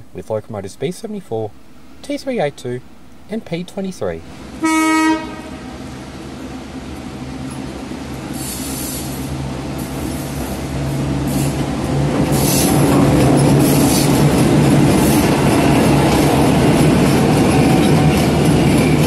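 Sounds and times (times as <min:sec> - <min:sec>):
diesel locomotive engine drone: 0:00.0 - 0:19.0
wheel and rail noise: 0:04.3 - 0:19.0.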